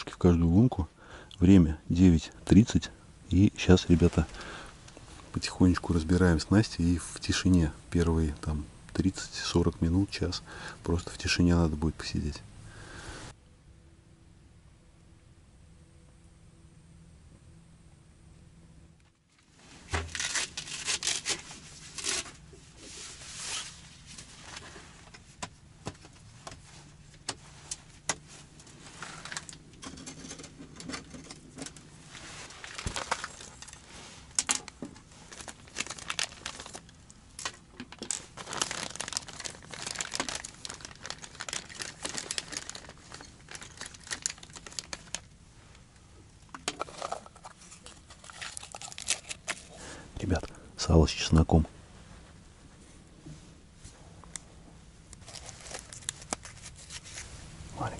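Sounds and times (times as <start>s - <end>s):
plastic packaging crinkling: 19.9s - 22.4s, 29.0s - 30.4s, 32.2s - 45.3s, 46.6s - 49.8s, 55.2s - 57.4s.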